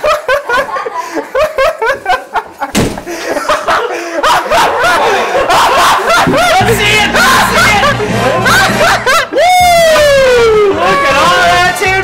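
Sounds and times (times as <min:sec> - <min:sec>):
people exclaiming and laughing: 0:03.1 - 0:12.0.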